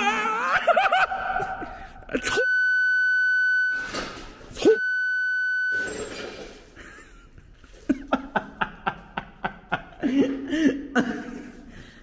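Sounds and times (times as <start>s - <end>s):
censor bleeps: 2.3s - 4.0s, 4.6s - 6.1s.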